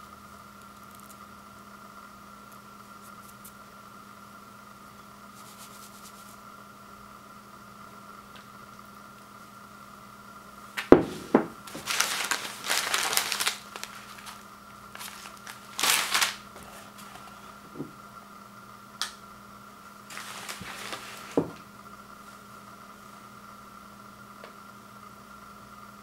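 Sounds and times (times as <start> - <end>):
paper packets rustling: 10.8 - 17.5, 20.1 - 21.6.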